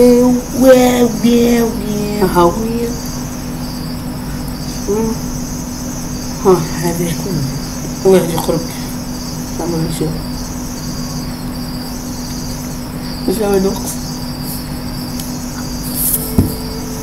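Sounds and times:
man's voice: 0:00.0 - 0:03.0
crickets chirping: 0:00.0 - 0:17.0
low hum: 0:00.0 - 0:17.0.

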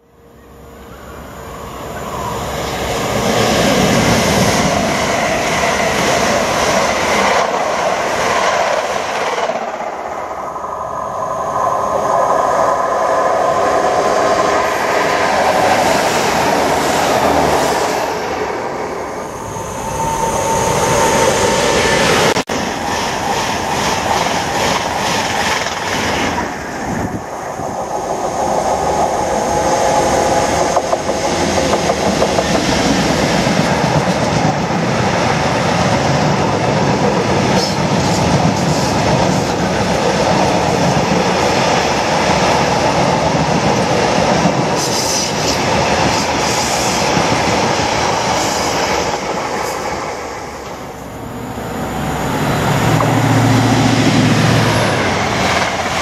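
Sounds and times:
diesel locomotive approaching: 0:00.0 - 0:56.0
train wheels clattering on rails: 0:22.2 - 0:26.5, 0:27.7 - 0:50.0.

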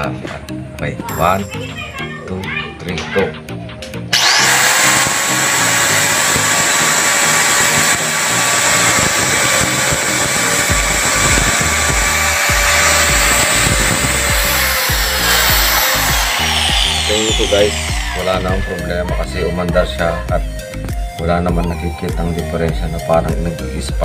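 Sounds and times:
angle grinder whining: 0:04.1 - 0:21.1.

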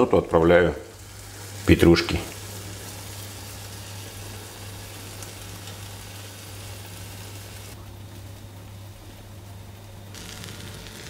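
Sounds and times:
omelette sizzling in frying pan: 0:00.8 - 0:11.0.

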